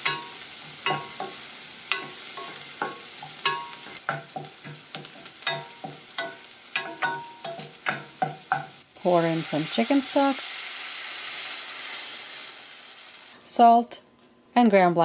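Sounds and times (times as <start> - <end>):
spoon scraping a pan: 0.0 - 8.8
onion sizzling in butter: 0.0 - 13.6.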